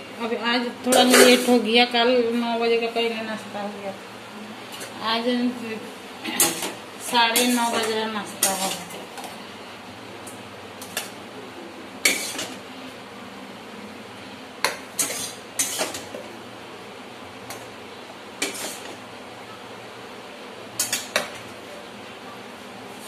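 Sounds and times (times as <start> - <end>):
ladle clinking and scraping: 15.0 - 16.1, 18.4 - 19.0.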